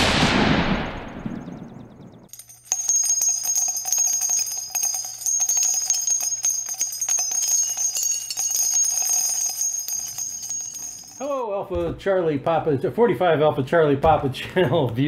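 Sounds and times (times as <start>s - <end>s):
jingling bells: 2.3s - 11.4s.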